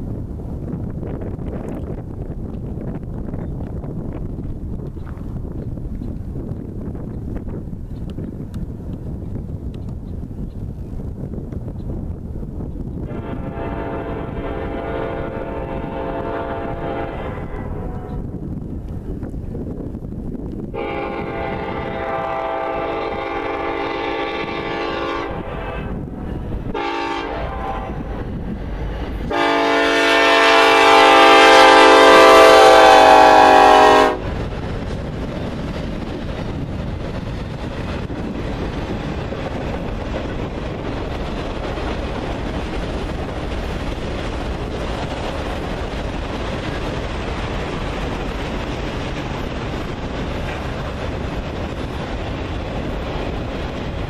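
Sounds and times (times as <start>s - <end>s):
locomotive air horn blasts: 13.1s - 18.2s, 20.8s - 26.0s, 26.7s - 28.1s, 29.3s - 34.3s
freight cars rumbling and rattling: 34.1s - 54.0s.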